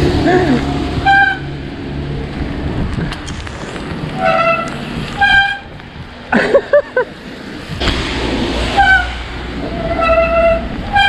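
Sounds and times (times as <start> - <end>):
horn tooting: 0.0 - 1.8, 4.2 - 5.8, 8.7 - 11.0.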